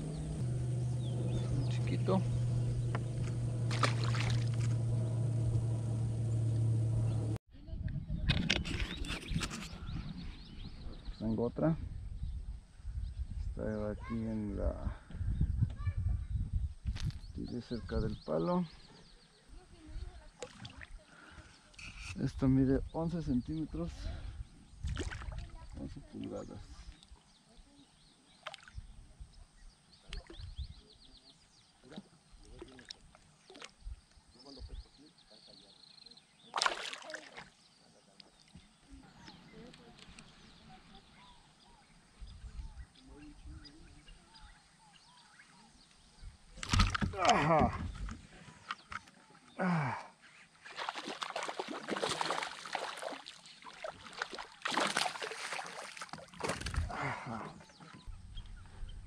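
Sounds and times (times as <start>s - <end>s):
faint water splashing: 0.0s - 7.1s, 18.8s - 22.2s, 23.8s - 35.6s, 36.3s - 58.8s
lure splashing on water surface: 3.2s - 4.8s, 24.9s - 25.5s, 36.5s - 37.6s, 50.7s - 56.9s.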